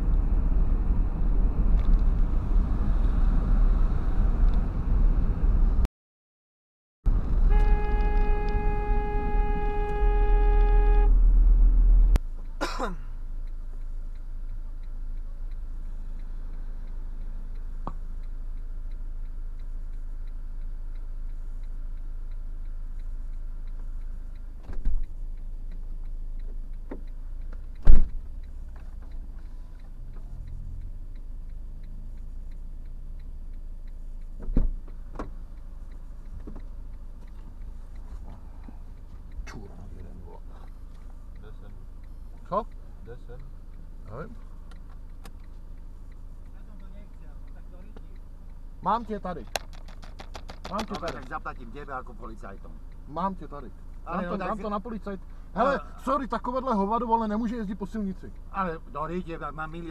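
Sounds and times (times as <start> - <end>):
car engine and road rumble: 0.0 - 5.9, 7.1 - 59.9
car horn: 7.4 - 12.1.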